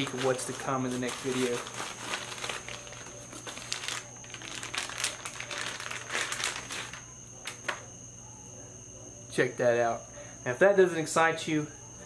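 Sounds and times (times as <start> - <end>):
paper crinkling and rustling: 0.0 - 7.8
sharp paper crackle: 0.0 - 7.8.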